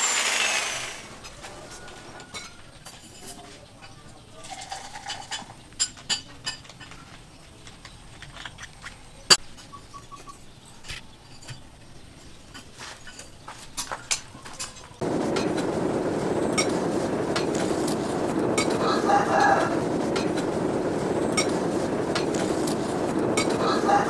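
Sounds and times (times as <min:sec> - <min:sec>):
forge blower rushing air: 0:00.0 - 0:01.3, 0:15.0 - 0:24.0.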